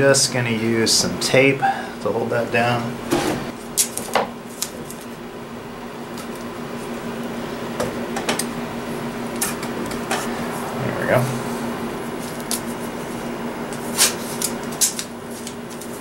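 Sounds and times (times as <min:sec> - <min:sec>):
steady low hum: 0:00.0 - 0:16.0
tape ripping: 0:13.7 - 0:15.9.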